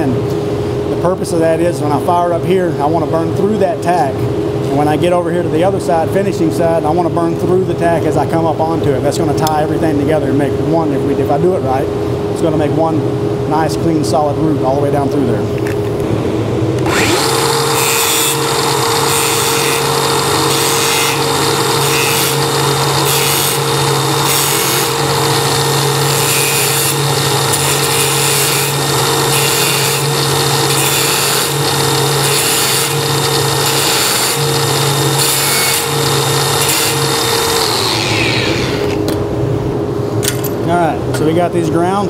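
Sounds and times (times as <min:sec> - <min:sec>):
angle grinder grinding steel: 0:16.8 - 0:39.1.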